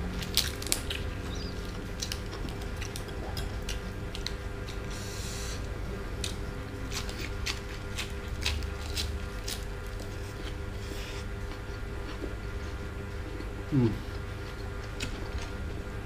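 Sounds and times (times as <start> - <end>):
lettuce leaves tearing: 0.0 - 4.4, 6.2 - 10.6.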